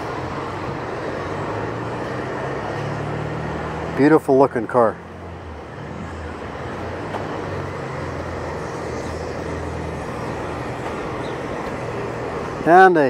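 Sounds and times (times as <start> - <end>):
industrial mill drone: 0.0 - 12.9.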